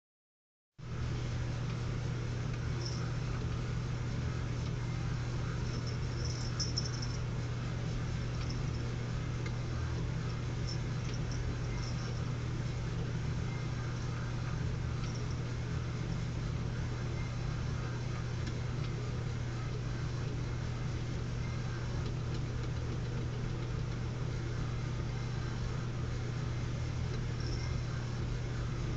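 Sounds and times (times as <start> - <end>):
small motor humming: 5.4 - 7.2, 8.2 - 8.9, 9.6 - 16.2, 27.1 - 28.9.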